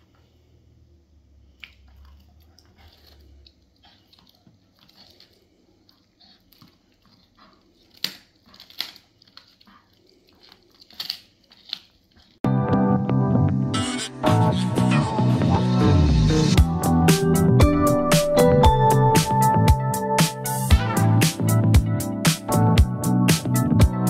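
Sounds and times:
bone cracking: 0:01.6 - 0:12.4
dog chewing on a bone: 0:01.6 - 0:12.4.

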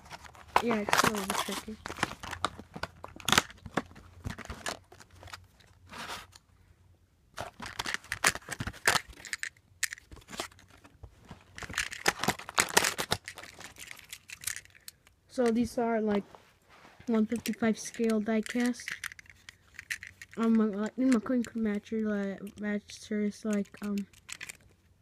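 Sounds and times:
plastic packaging crinkling: 0:00.0 - 0:06.4, 0:07.4 - 0:14.9, 0:17.3 - 0:20.6.

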